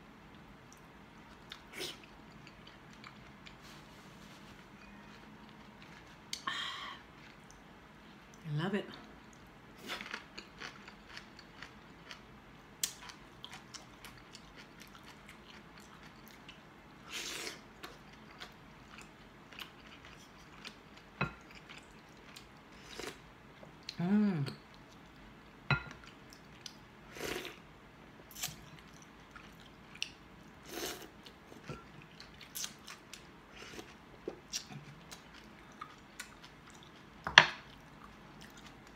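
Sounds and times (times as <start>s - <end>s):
crunchy chewing: 9.8s - 12.2s
person humming mm: 24.0s - 24.6s.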